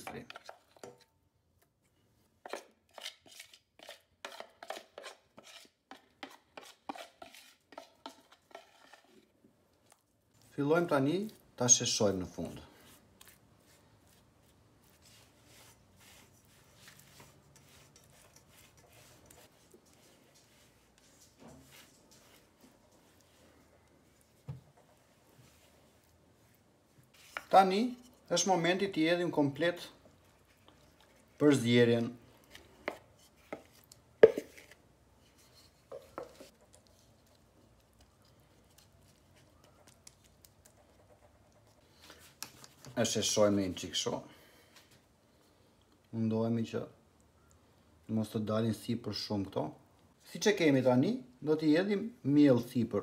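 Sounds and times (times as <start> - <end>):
spatula scraping dough in pan: 2.4 - 9.4, 12.8 - 28.3
wooden spoon knocking bowl: 32.8 - 34.6.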